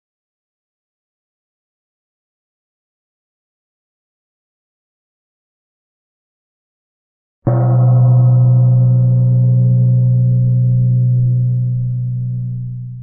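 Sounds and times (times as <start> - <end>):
low gong ringing: 7.5 - 13.0.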